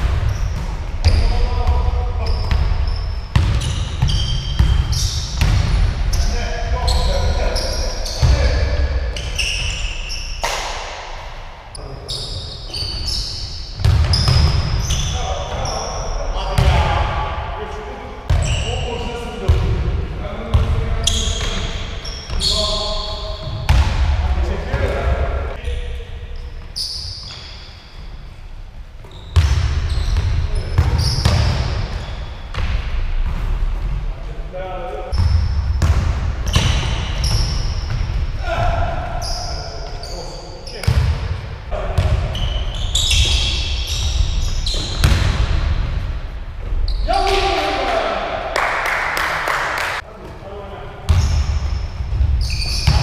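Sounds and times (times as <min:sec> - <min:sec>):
basketball bouncing: 0:00.0 - 0:06.2, 0:13.8 - 0:15.0, 0:23.4 - 0:24.8, 0:35.1 - 0:38.3, 0:40.8 - 0:41.2, 0:44.1 - 0:46.0
sneakers squeaking on gym floor: 0:00.0 - 0:10.9, 0:11.7 - 0:16.8, 0:18.3 - 0:19.0, 0:20.9 - 0:24.0, 0:24.6 - 0:28.4, 0:29.0 - 0:34.0, 0:35.1 - 0:41.3, 0:42.0 - 0:45.5, 0:46.6 - 0:47.2, 0:51.1 - 0:53.0
basketball bouncing on wooden floor: 0:44.8 - 0:45.6.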